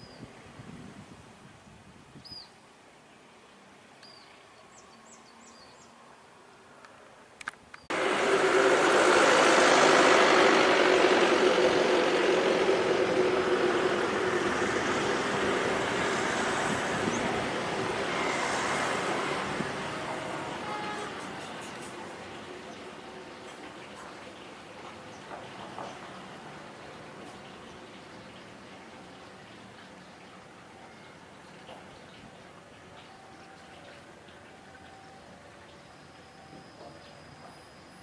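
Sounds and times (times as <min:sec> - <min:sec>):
locomotive engine noise: 0:07.9 - 0:38.0.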